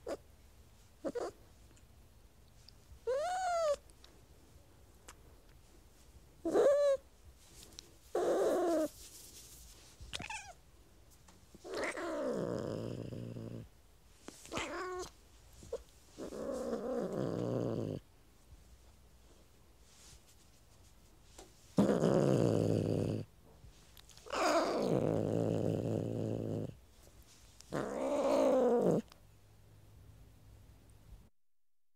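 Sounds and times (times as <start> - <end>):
cat growling: 11.6 - 13.7, 14.4 - 15.1, 16.2 - 18.0, 21.8 - 23.3, 24.2 - 26.8, 27.7 - 29.2.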